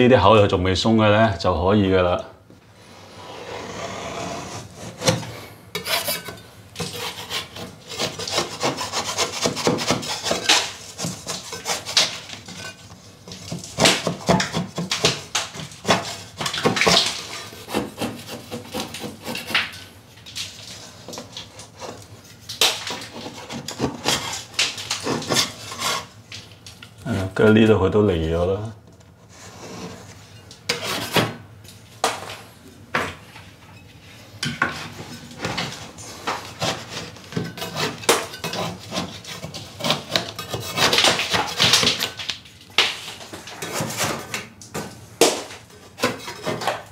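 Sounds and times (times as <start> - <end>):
metal scraper scraping ceiling: 2.8 - 19.8, 22.8 - 26.2, 29.2 - 31.4, 34.6 - 42.2, 43.0 - 44.4, 45.8 - 46.9.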